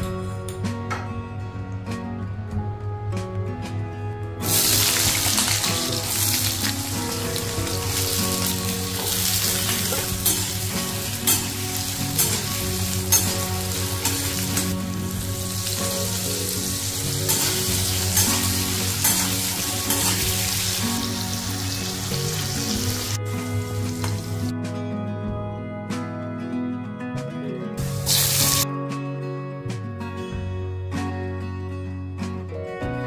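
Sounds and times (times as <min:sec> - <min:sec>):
potatoes sizzling in hot oil: 0:04.4 - 0:24.5, 0:27.9 - 0:28.6.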